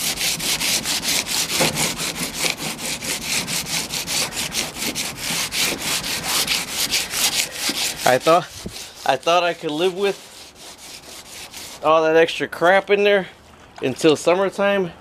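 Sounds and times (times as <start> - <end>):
sandpaper rubbing on paint: 0.0 - 12.0.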